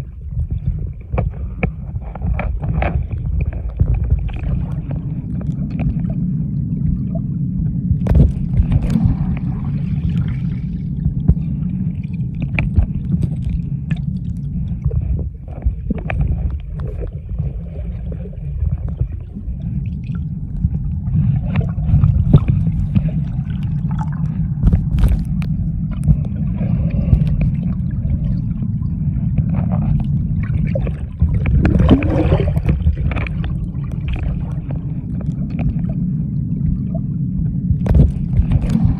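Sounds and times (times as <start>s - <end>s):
low underwater water rumble: 0.0s - 38.9s
loud water gurgling: 30.7s - 33.1s.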